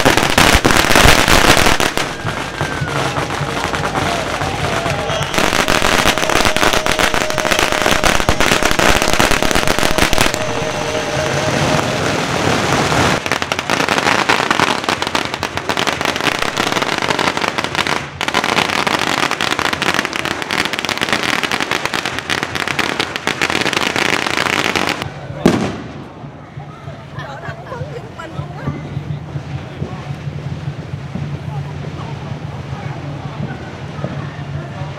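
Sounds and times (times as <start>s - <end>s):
firecrackers popping: 0.0s - 26.4s.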